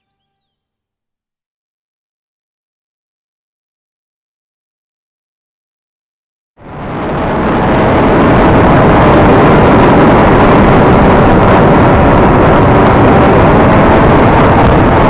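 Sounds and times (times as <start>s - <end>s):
wind buffeting: 6.6s - 15.0s.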